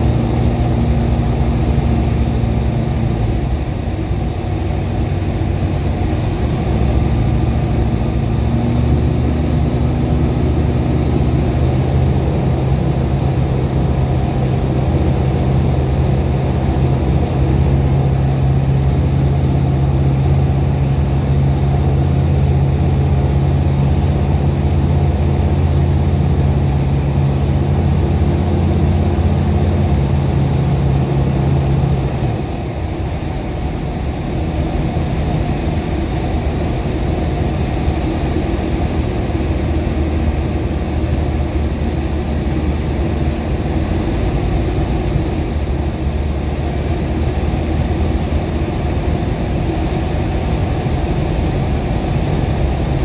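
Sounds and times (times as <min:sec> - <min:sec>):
light aircraft engine droning: 0:00.0 - 0:53.0.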